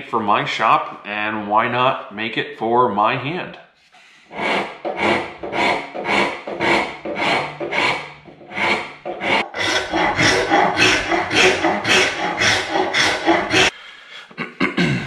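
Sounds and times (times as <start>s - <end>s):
file scraping wood: 4.2s - 13.7s.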